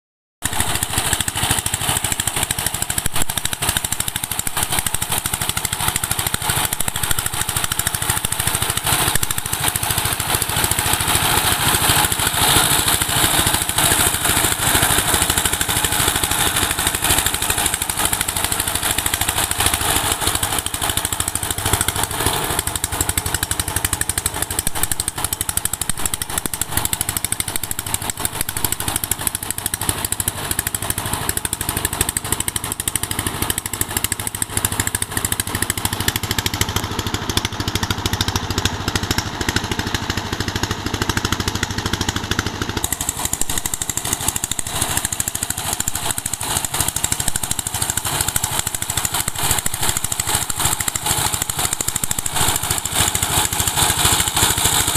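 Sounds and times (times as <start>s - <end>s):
diesel engine chugging: 0.4s - 54.9s.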